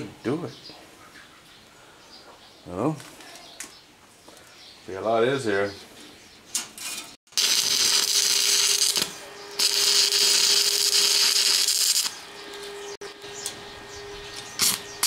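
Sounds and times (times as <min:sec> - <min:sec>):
welding arc crackling and hissing: 0:07.3 - 0:12.3, 0:14.4 - 0:15.0
steady hum: 0:07.4 - 0:15.0.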